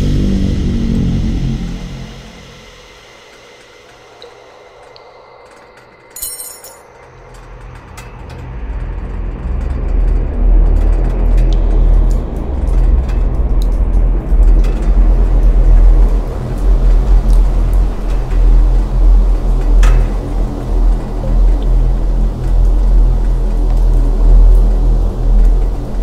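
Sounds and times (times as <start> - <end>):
deep rumbling drone: 0.0 - 6.3, 7.0 - 26.0.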